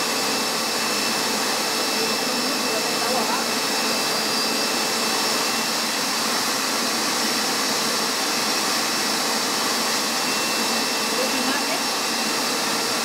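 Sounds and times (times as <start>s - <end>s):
suction motor whining: 0.0s - 13.0s.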